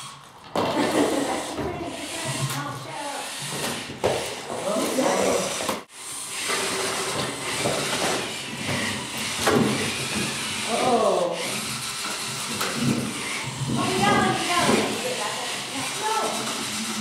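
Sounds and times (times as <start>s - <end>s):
robot electric motors whirring: 0.0s - 17.0s
person exclaiming: 10.7s - 11.4s.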